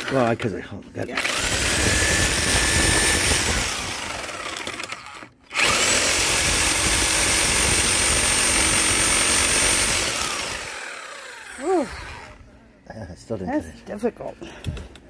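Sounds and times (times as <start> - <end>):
electric drill whining: 1.2 - 12.4.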